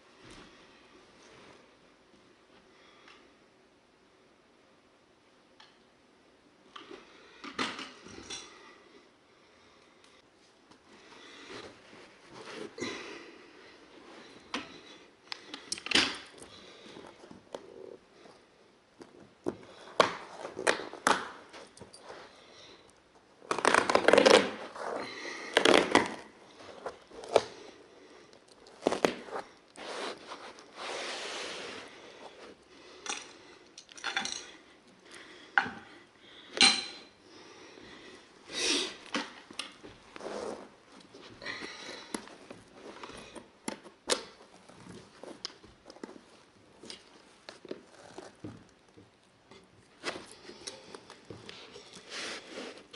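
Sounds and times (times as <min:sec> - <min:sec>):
carpet rustling and scraping: 0:10.4 - 0:12.9, 0:13.7 - 0:32.7, 0:38.2 - 0:49.1, 0:49.7 - 0:52.9.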